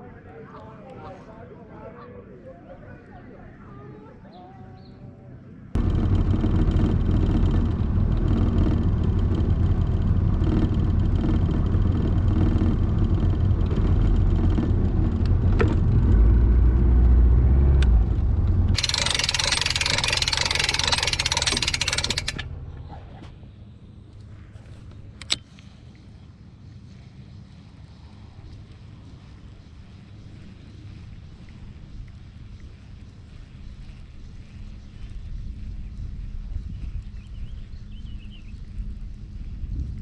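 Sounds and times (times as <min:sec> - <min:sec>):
boat engine humming: 0:00.0 - 0:36.4
sharp click: 0:25.2 - 0:25.7.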